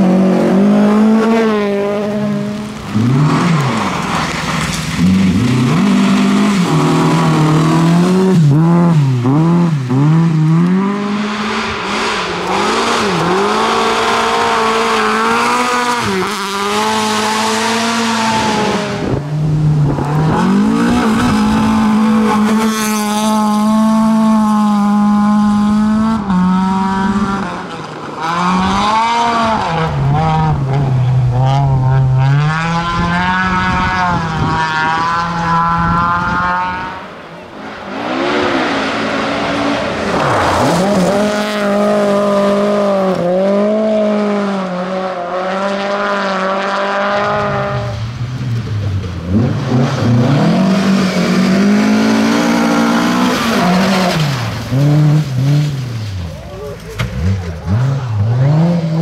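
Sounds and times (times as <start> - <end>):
rally car engines revving: 0.0 - 59.0.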